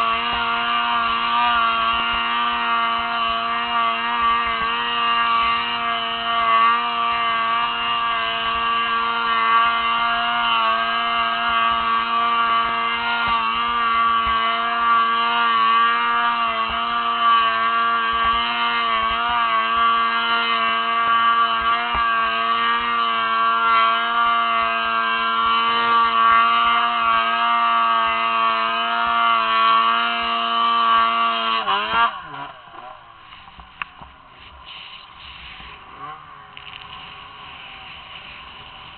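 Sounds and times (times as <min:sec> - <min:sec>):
snowmobile engine revving: 0:00.0 - 0:38.9.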